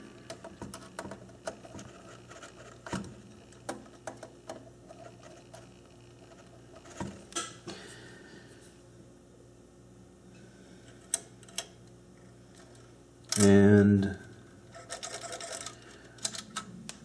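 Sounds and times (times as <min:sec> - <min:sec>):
small metal parts clicking: 0:14.7 - 0:16.7.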